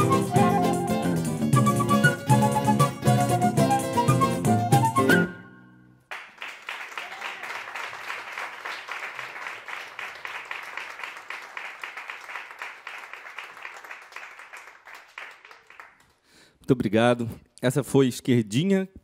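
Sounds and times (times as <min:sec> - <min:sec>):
audience applauding: 0:06.1 - 0:16.3.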